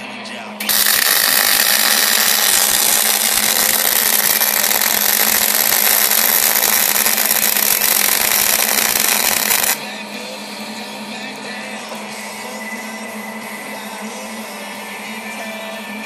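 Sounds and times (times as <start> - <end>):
welding arc crackling hiss: 0.6 - 9.8.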